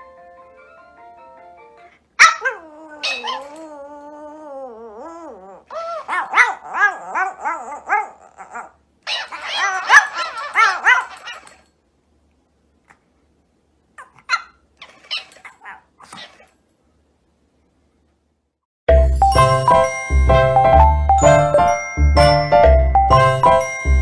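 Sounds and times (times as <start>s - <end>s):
dog howling and yipping: 2.2s - 11.6s, 14.0s - 16.5s
soft melodic tune: 18.9s - 24.0s.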